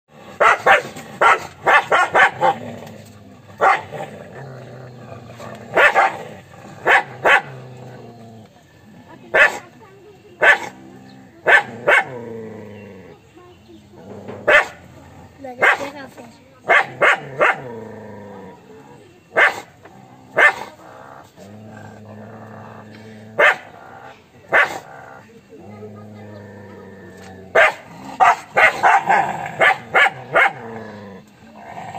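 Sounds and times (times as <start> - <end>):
dogs barking aggressively: 0.1 - 8.3, 9.2 - 13.0, 14.0 - 18.6, 19.3 - 31.9
dog growling: 0.1 - 31.9
dog barking: 0.4 - 2.6, 3.6 - 3.9, 5.7 - 6.2, 6.8 - 7.6, 9.3 - 9.7, 10.4 - 10.8, 11.4 - 12.2, 14.5 - 14.8, 15.6 - 16.0, 16.6 - 17.7, 19.4 - 19.7, 20.4 - 20.8, 23.4 - 23.8, 24.5 - 24.9, 27.5 - 30.7.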